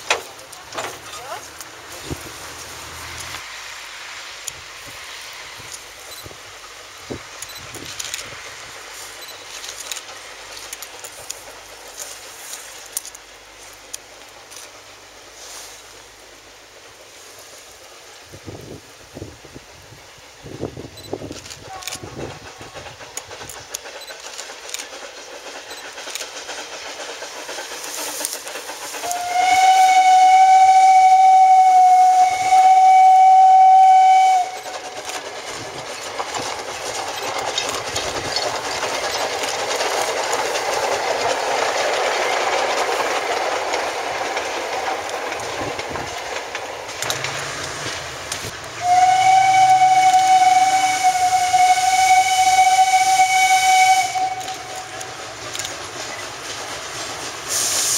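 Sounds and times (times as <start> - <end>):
train passing rush: 0.0 - 57.9
steam locomotive whistle: 29.0 - 34.8, 48.8 - 55.0.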